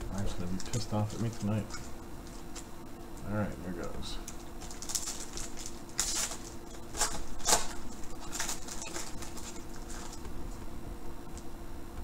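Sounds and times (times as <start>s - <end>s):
wrapper crinkling and tearing: 0.2s - 2.7s, 4.3s - 10.6s.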